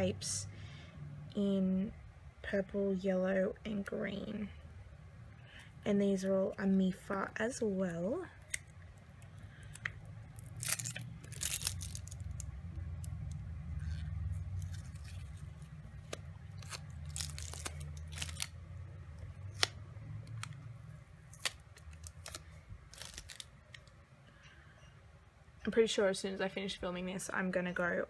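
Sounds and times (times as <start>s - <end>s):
steady low hum: 0.0s - 28.0s
tape clicks and rustles: 8.4s - 20.7s, 21.3s - 24.0s.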